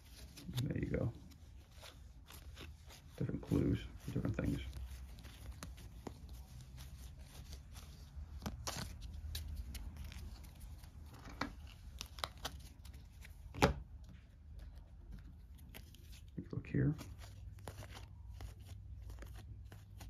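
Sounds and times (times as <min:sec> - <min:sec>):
cards clicking and sliding: 0:00.1 - 0:13.8.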